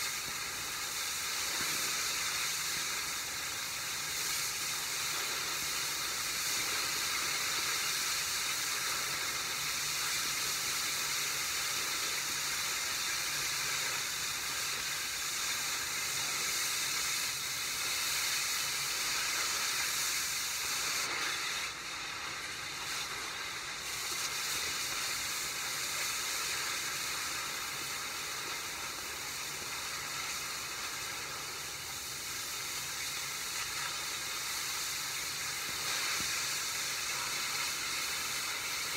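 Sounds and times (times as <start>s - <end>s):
cutting torch gas hiss: 0.0s - 38.9s.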